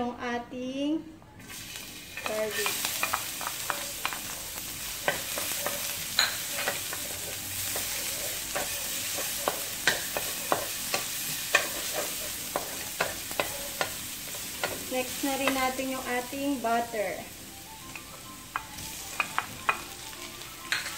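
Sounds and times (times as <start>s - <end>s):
garlic sizzling in oil: 1.4s - 20.9s.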